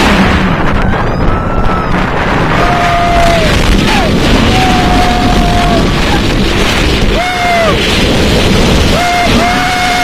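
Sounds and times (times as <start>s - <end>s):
roller coaster running on track: 0.0s - 10.0s
wind buffeting microphone: 0.0s - 10.0s
riders yelling: 2.6s - 6.3s, 7.1s - 7.8s, 8.9s - 10.0s.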